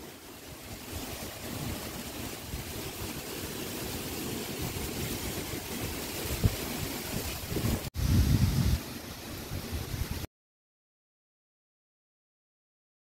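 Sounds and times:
steady hiss: 0.0s - 10.3s.

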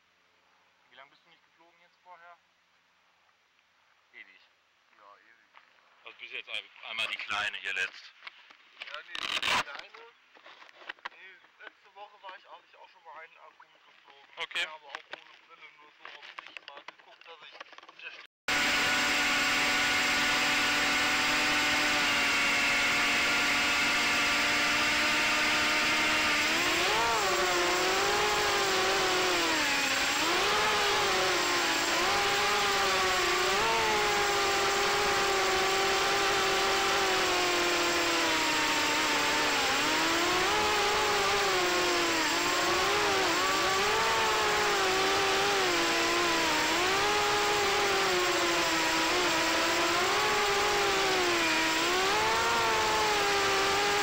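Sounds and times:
drone motors and propellers whirring: 18.5s - 54.0s.

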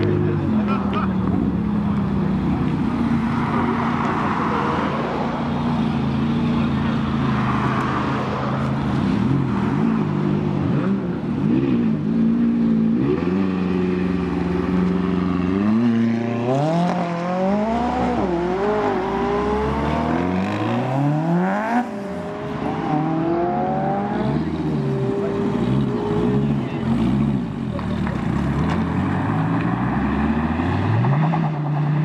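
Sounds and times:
sports car engine revving: 9.0s - 31.6s.

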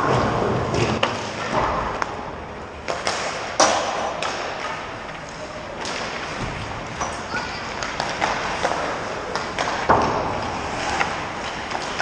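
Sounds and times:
hockey pucks cracking: 2.8s - 12.0s
skates scraping on ice: 2.9s - 12.0s.

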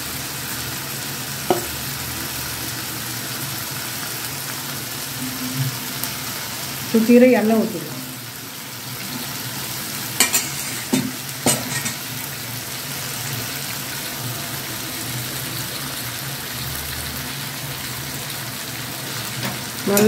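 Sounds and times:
fish sizzling in hot oil: 0.0s - 20.0s
steel spatula clicking on pan: 10.2s - 12.0s.

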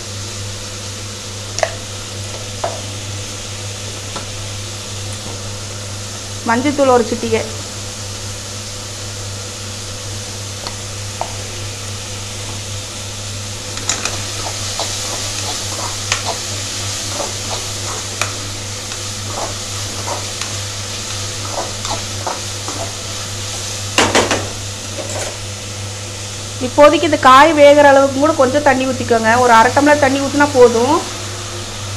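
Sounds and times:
vegetables sizzling in oil: 0.0s - 31.9s.

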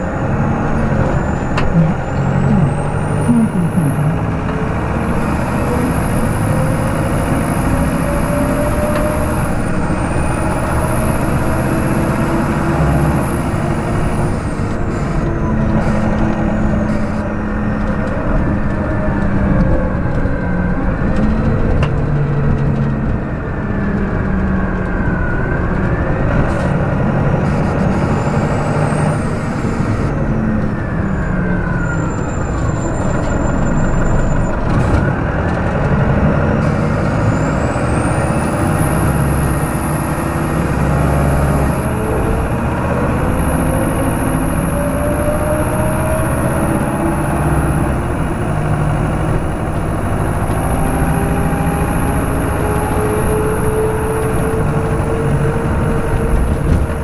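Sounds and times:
bus diesel engine: 0.0s - 57.0s
high whine: 1.0s - 17.4s.

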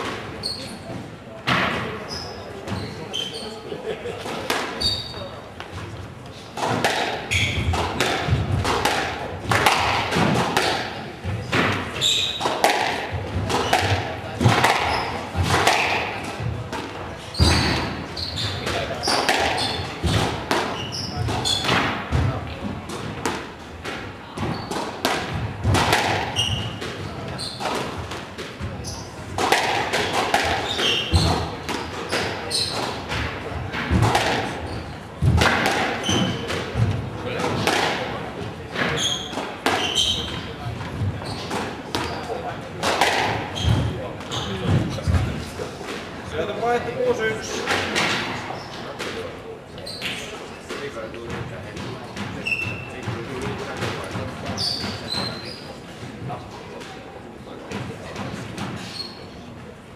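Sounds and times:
squash ball hitting rackets and walls: 0.0s - 3.3s, 4.2s - 49.3s, 49.9s - 59.2s
sneakers squeaking on wooden floor: 0.0s - 3.7s, 4.6s - 38.0s, 38.7s - 45.4s, 49.8s - 50.4s, 51.3s - 56.1s, 57.7s - 59.6s.

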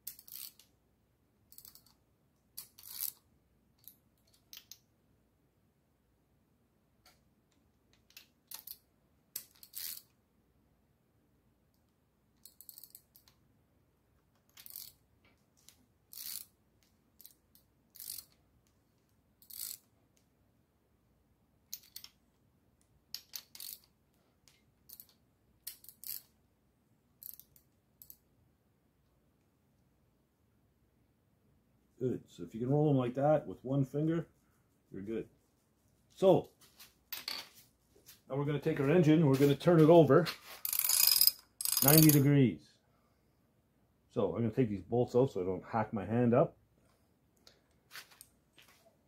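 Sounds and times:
ratchet wrench clicking: 0.1s - 0.7s, 1.5s - 2.0s, 2.6s - 3.2s, 9.4s - 10.0s, 12.4s - 13.3s, 14.5s - 15.0s, 16.1s - 16.5s, 17.2s - 18.4s, 19.4s - 19.9s, 23.2s - 23.9s, 24.9s - 26.3s, 27.2s - 28.2s, 40.6s - 42.2s.

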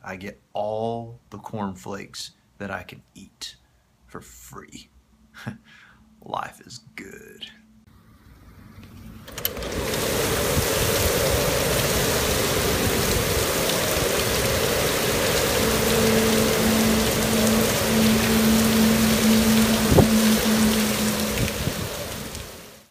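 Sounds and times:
heavy rain pouring: 9.2s - 22.9s.

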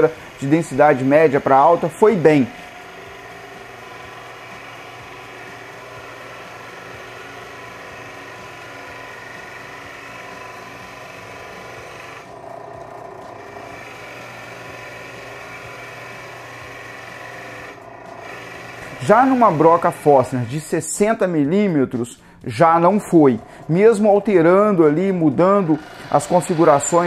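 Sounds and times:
drill bit cutting wood hiss: 0.0s - 20.7s, 22.2s - 27.0s
drill press motor hum: 0.0s - 20.8s, 22.2s - 27.0s.

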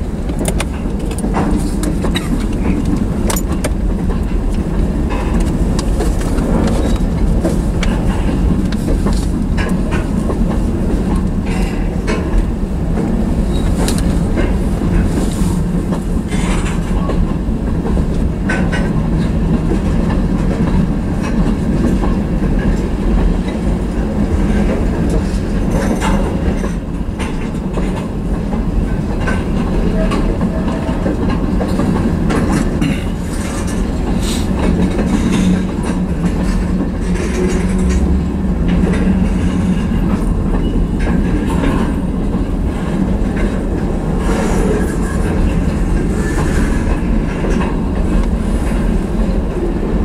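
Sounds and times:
train wheels rumbling on rail: 0.0s - 50.0s
wheels clicking over rail joints: 0.0s - 50.0s.

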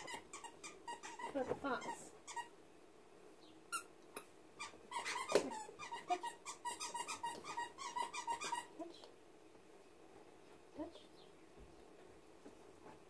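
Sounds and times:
squeaky dog toy squeaking: 0.0s - 2.5s, 4.6s - 8.8s.

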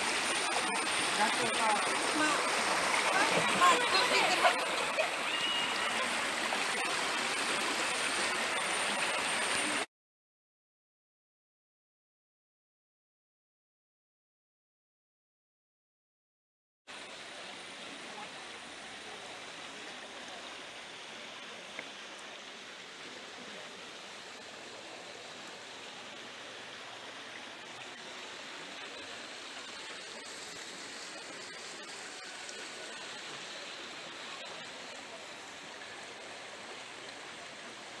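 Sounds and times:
river rushing over rocks: 0.0s - 9.8s.

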